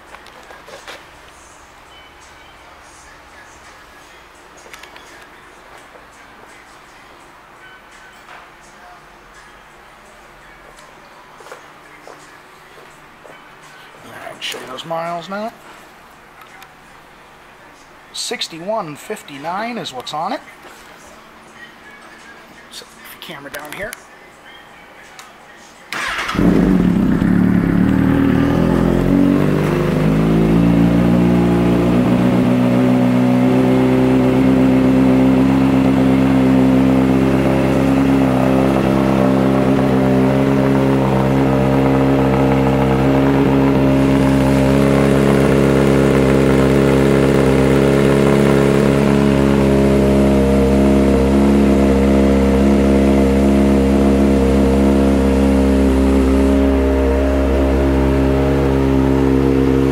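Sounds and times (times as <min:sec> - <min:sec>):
motorcycle engine idling: 0:26.0 - 0:59.9.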